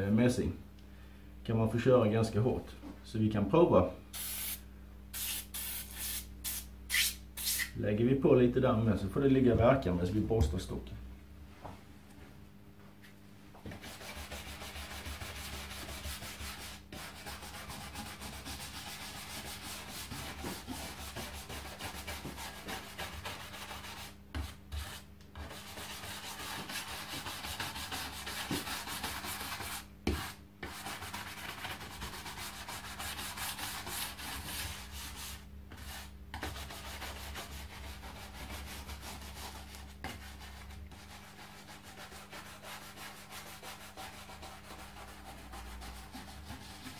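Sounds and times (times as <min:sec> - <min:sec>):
stiff brush scrubbing wood: 0:24.8 - 0:46.9.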